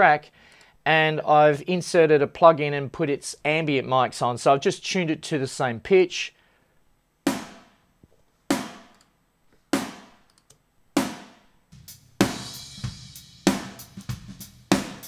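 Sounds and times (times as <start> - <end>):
snare drum hits: 7.3 - 7.7, 8.6 - 8.9, 9.8 - 10.2, 11.0 - 11.4
drum kit hits with cymbals: 7.3 - 7.8, 8.5 - 8.9, 9.8 - 10.2, 11.0 - 15.0.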